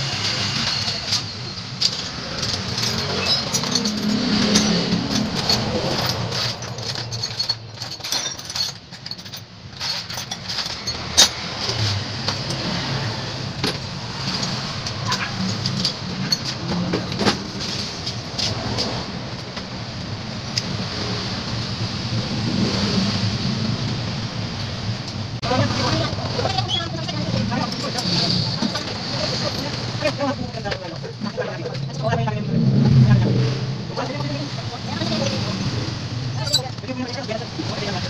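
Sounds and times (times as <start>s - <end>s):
engine and traffic noise: 0.0s - 38.0s
metal hand tools clinking: 0.6s - 12.9s, 13.6s - 18.9s, 25.9s - 30.2s, 36.4s - 38.0s.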